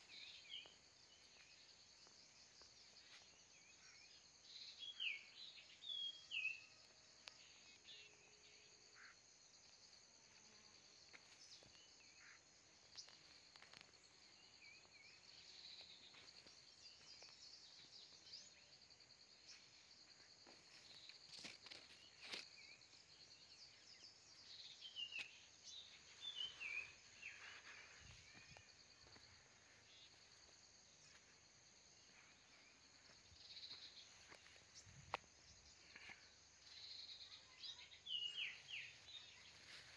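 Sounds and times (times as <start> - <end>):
bird chirps: 0.0 - 9.2, 20.8 - 31.2, 32.2 - 39.9
crickets droning: 0.0 - 39.9.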